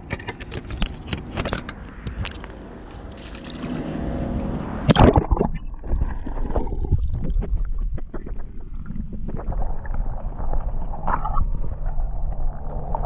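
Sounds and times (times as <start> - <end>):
underwater clicks and knocks: 0.0 - 2.6, 4.9 - 9.7
muffled underwater sloshing: 0.0 - 13.0
water swish: 2.3 - 13.0.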